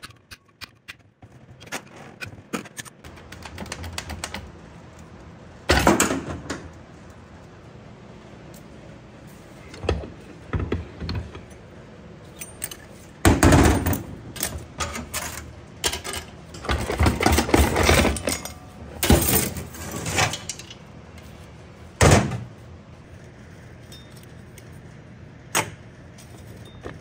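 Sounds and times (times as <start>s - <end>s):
metal parts clanking and jingling: 12.2s - 20.8s.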